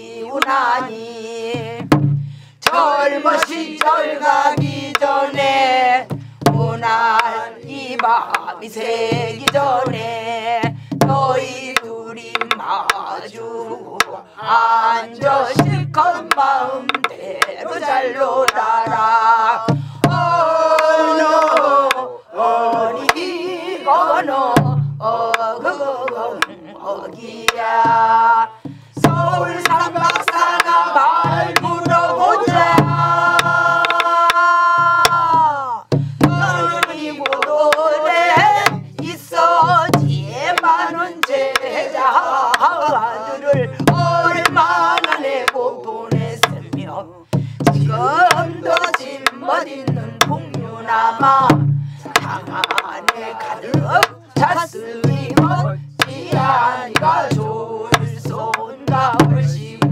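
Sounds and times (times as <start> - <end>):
woman singing with vibrato: 0.0 - 2.0, 2.6 - 59.9
group singing along: 0.0 - 59.9
barrel drum thumps: 1.6 - 2.8, 4.6 - 8.4, 9.1 - 11.5, 15.2 - 17.1, 24.6 - 25.0, 27.5 - 41.4, 42.5 - 59.9
drum stick clicks: 11.7 - 12.6, 29.6 - 30.8, 36.8 - 37.9, 43.8 - 45.6, 47.6 - 49.4, 51.5 - 53.2.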